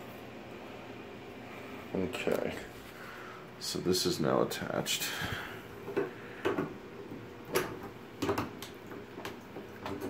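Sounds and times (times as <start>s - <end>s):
plastic clicks and knocks: 7.5s - 10.0s.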